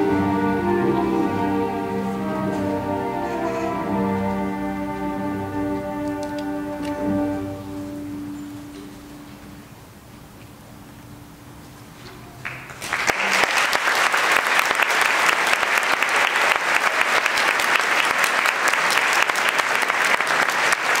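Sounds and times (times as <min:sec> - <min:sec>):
audience applause: 0:12.4 - 0:21.0.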